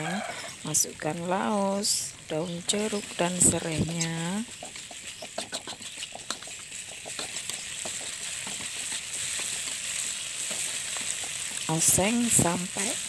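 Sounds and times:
spice paste sizzling in oil: 0:00.0 - 0:13.0
metal spatula scraping a pan: 0:03.9 - 0:11.4.

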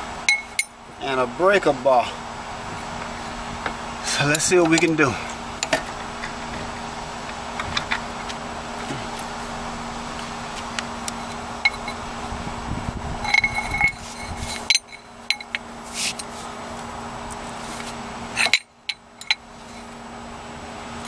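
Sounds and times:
steady low hum: 0:00.0 - 0:21.0
short metallic ring: 0:00.2 - 0:00.8, 0:13.2 - 0:16.1
breaker bar clinking on metal: 0:00.3 - 0:00.8.

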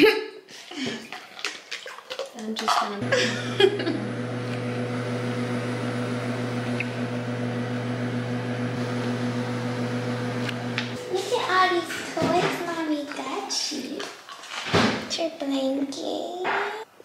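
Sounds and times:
low machine hum: 0:03.0 - 0:12.1.

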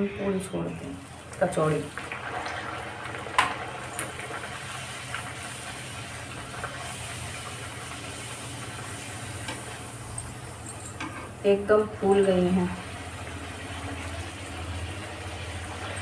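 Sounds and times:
oil sizzling while deep-frying: 0:00.0 - 0:16.0.

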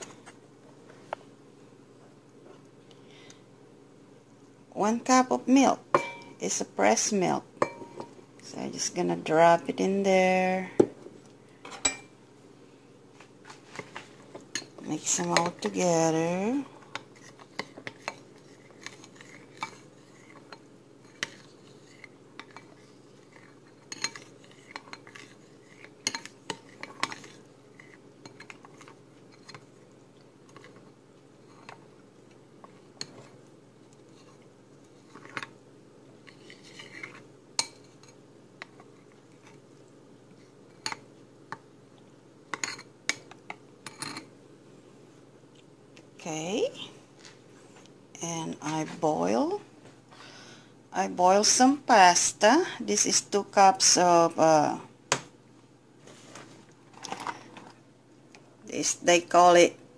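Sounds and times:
spoon clinking and scraping bowl: 0:06.0 - 0:06.4, 0:07.6 - 0:08.2, 0:17.2 - 0:29.6
metal spoon stirring in a bowl: 0:07.6 - 0:08.2, 0:14.5 - 0:16.2, 0:16.9 - 0:29.8, 0:30.4 - 0:31.8, 0:36.2 - 0:39.6.

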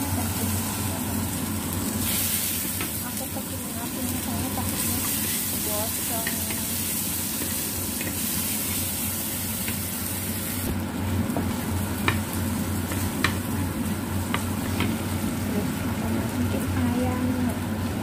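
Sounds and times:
vegetables sizzling in oil: 0:00.0 - 0:18.0
spatula stirring in pan: 0:04.3 - 0:10.3.

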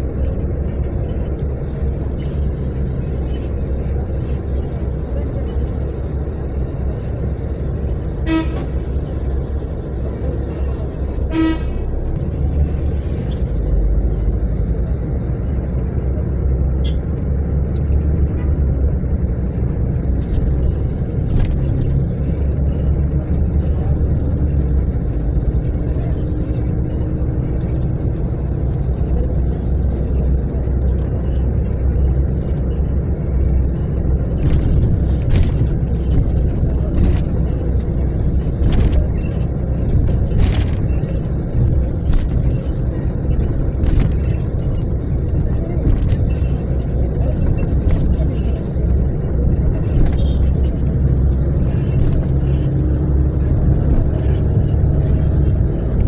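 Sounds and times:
bus engine and road noise: 0:00.0 - 0:56.0
vehicle horn toots: 0:08.2 - 0:08.8, 0:11.3 - 0:11.8.

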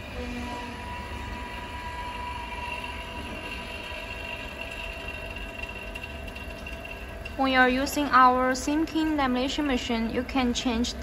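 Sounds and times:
vacuum pump humming and whining: 0:00.0 - 0:11.0.

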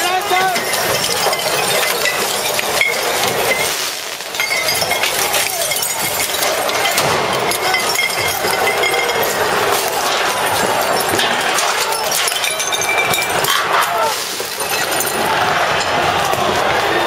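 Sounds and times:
glass bottles clinking and smashing: 0:00.0 - 0:16.0
constant noisy din: 0:00.0 - 0:17.0.

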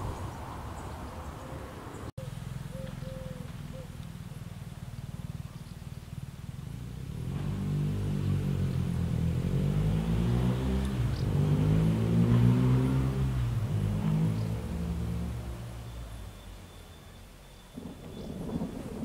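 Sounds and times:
vehicle engine approaching: 0:00.0 - 0:19.0.

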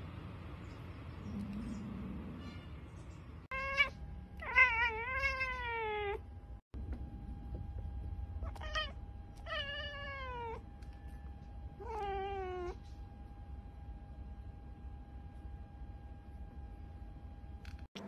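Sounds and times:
cat meowing: 0:03.5 - 0:06.2, 0:08.4 - 0:10.6, 0:11.8 - 0:12.8.

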